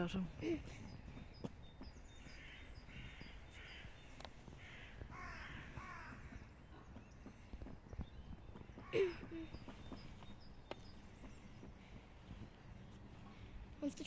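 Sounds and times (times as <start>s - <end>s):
faint high bird chirps: 0.0s - 4.9s, 5.5s - 14.0s
crow cawing: 2.3s - 6.5s.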